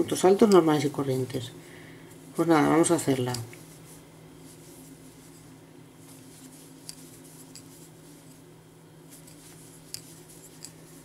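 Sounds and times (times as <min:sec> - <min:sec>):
steady low hum: 0:00.0 - 0:11.0
yarn rustling on crochet hook: 0:02.2 - 0:11.0.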